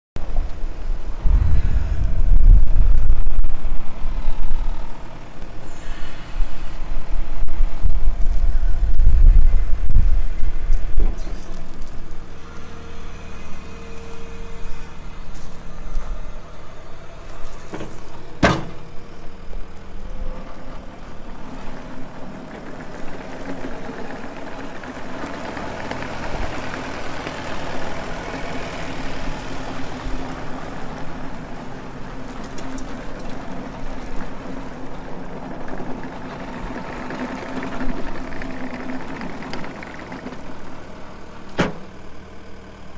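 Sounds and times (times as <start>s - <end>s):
track loader diesel engine: 0.2s - 42.9s.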